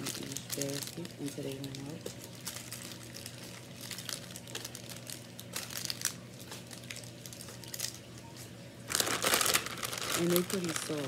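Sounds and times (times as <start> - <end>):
plastic packaging crinkling: 0.0 - 8.1, 8.8 - 11.0
candies dropping: 8.9 - 11.0.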